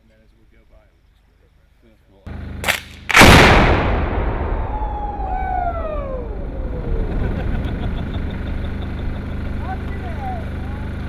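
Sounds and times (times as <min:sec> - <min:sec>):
explosion blast and rumble: 0:03.1 - 0:08.2
thin falling whistles: 0:04.5 - 0:07.1.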